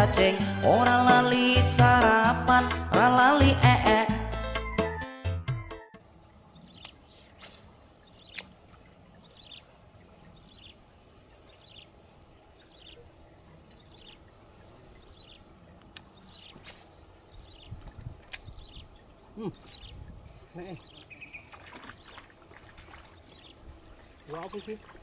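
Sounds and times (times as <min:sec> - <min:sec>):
music: 0:00.0 - 0:06.0
high insect drone: 0:06.0 - 0:25.0
bird chirping call: 0:06.1 - 0:24.9
sharp clicks: 0:06.7 - 0:08.6, 0:14.9 - 0:18.6.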